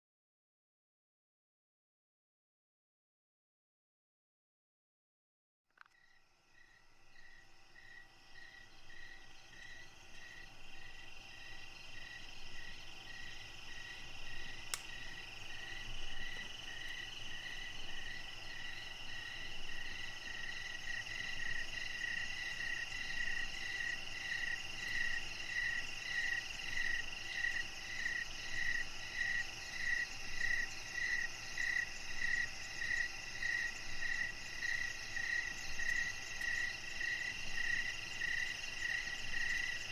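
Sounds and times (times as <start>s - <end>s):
insects and frogs chirping: 5.8s - 39.9s
faint click: 14.7s - 14.9s.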